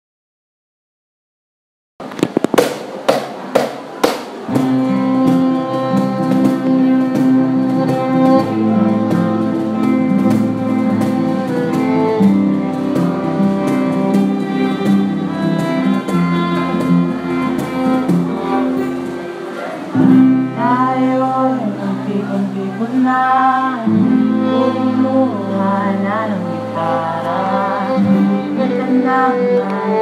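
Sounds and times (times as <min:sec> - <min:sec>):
cajon beat: 0:02.0 - 0:21.8
acoustic and electric guitar: 0:02.0 - 0:30.0
violin bowed melody: 0:04.5 - 0:21.5, 0:23.8 - 0:30.0.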